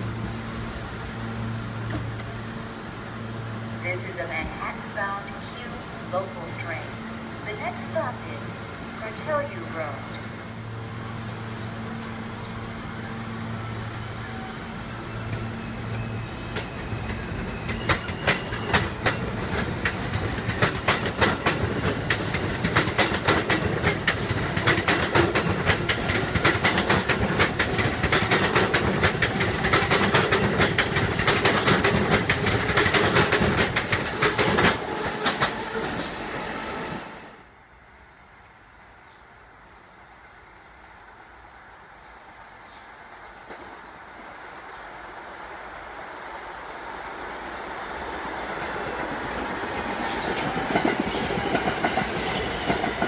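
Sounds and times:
train equipment hum: 0.0s - 53.0s
train wheels clattering over rail joints: 16.5s - 36.2s, 48.6s - 53.0s.

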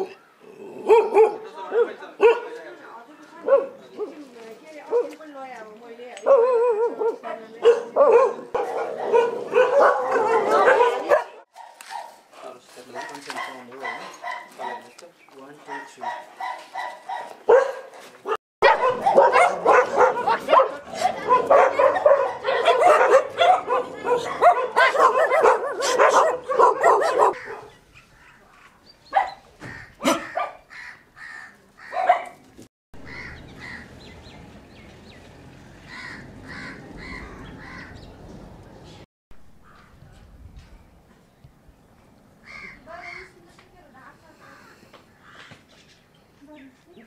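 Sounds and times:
dogs barking and yelping: 0.0s - 2.5s, 6.2s - 12.2s, 12.9s - 14.9s, 15.7s - 30.8s, 31.8s - 32.4s.

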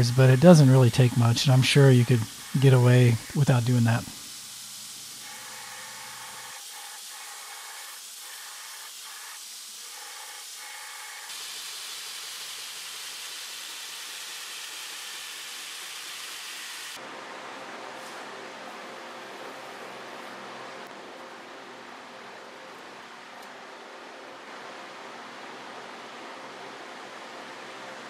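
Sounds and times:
belt grinder grinding steel: 0.0s - 3.9s.

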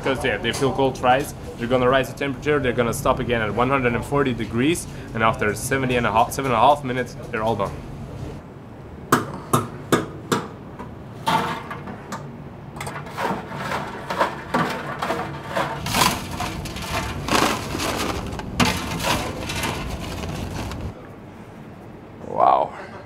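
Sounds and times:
fry basket clanking: 12.8s - 20.9s
metal scoop scraping fries: 12.8s - 20.9s.

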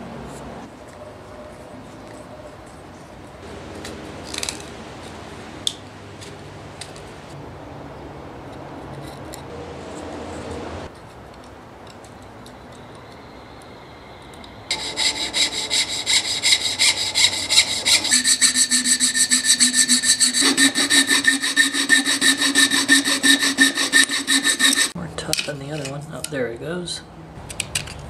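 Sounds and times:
file rasping on wood: 14.7s - 25.0s
hand saw cutting wood: 14.7s - 25.0s.

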